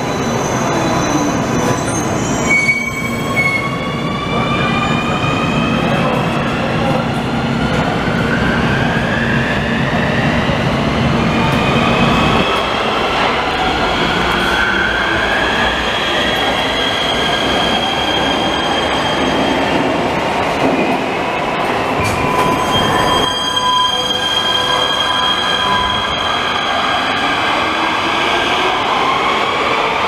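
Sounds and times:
high brake squeal: 0.0s - 3.8s, 22.0s - 27.0s.

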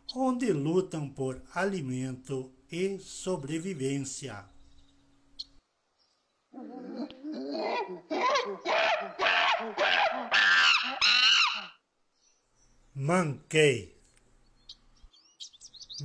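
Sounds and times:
monkey hooting calls: 6.5s - 11.8s.

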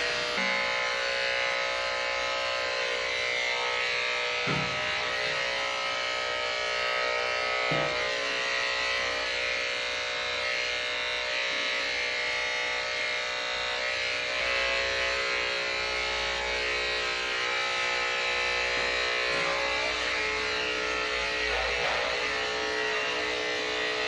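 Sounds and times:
electric clippers buzzing: 0.0s - 24.0s.

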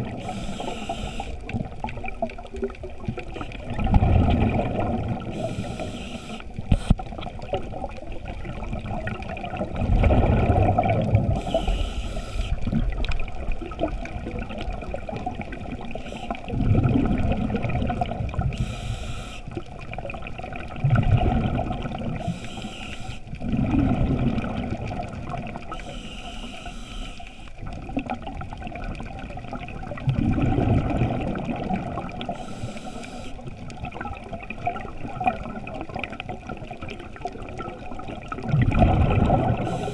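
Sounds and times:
exhaled bubbles gurgling: 0.0s - 39.9s
underwater wash: 0.0s - 39.9s
regulator inhale hiss: 0.1s - 1.5s, 5.3s - 7.1s, 11.3s - 12.7s, 15.8s - 16.5s, 18.5s - 19.6s, 22.2s - 23.3s, 25.7s - 27.6s, 32.2s - 33.5s, 39.6s - 39.9s.

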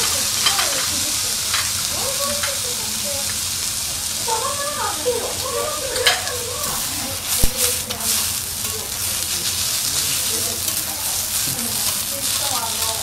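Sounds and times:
metal clack on griddle: 0.0s - 2.6s, 5.9s - 8.2s
rice sizzling on a griddle: 0.0s - 13.0s.

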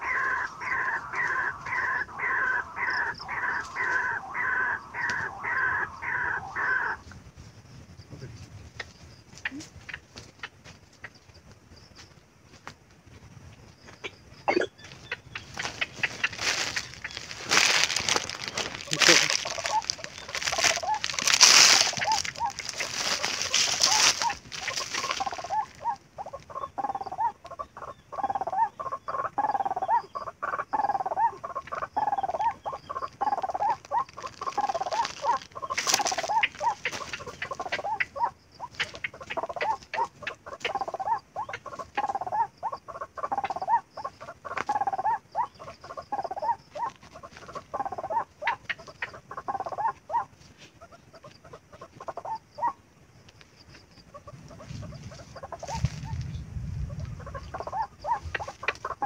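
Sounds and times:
waterhen croaking call: 0.0s - 7.1s, 14.4s - 52.8s, 54.1s - 56.2s, 56.9s - 59.0s
footsteps crunching dry leaves: 0.1s - 5.7s, 14.8s - 26.0s, 33.0s - 38.0s, 54.4s - 58.9s
rustles and clicks: 14.8s - 25.9s, 33.2s - 37.8s, 54.6s - 57.2s.

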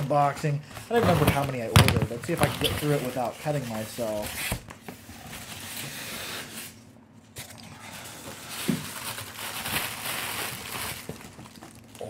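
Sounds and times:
cardboard and packing crinkling: 0.0s - 5.8s, 7.8s - 12.0s.

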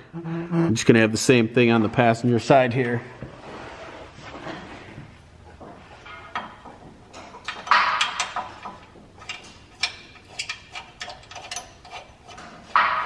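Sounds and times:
metal clank: 6.0s - 13.0s
metal bolt clicks and clinks: 7.1s - 12.4s.

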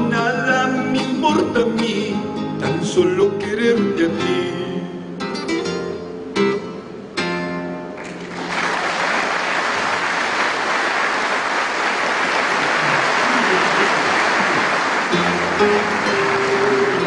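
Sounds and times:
acoustic guitar notes: 0.0s - 8.2s, 12.8s - 17.0s
audience applause: 8.0s - 17.0s.

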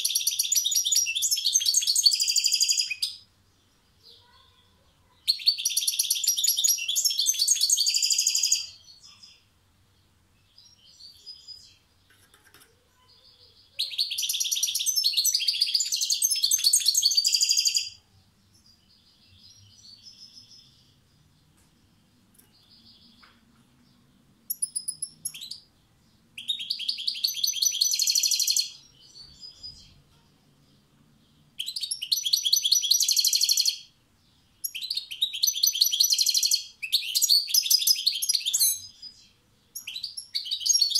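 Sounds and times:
goldfinch twittering song: 26.4s - 30.0s.

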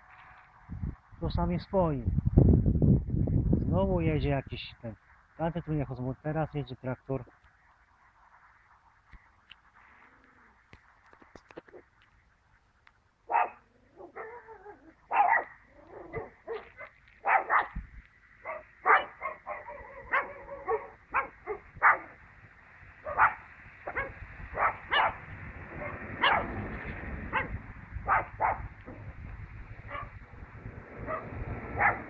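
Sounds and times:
dog barking: 13.3s - 17.8s, 18.4s - 22.2s, 23.0s - 26.6s, 27.3s - 29.0s, 29.8s - 30.2s, 31.0s - 32.0s
tractor engine rumble: 15.0s - 32.0s.

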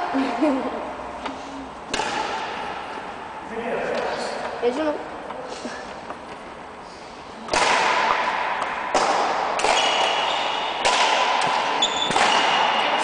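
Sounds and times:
rackets hitting shuttlecock: 1.2s - 3.2s, 7.4s - 13.0s
shoes squeaking on court: 9.7s - 10.8s, 11.5s - 13.0s.

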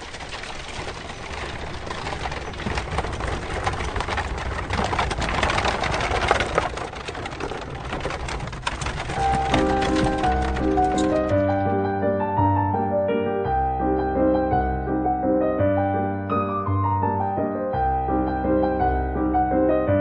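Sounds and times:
hooves clattering: 0.0s - 11.6s
carriage wheels rumbling on dirt: 0.0s - 11.7s.

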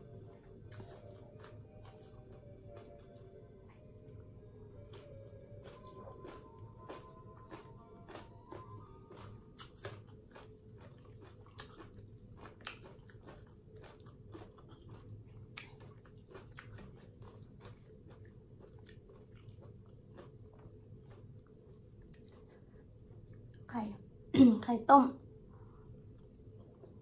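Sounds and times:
crisp crunching while chewing: 0.7s - 3.0s, 4.8s - 22.5s.

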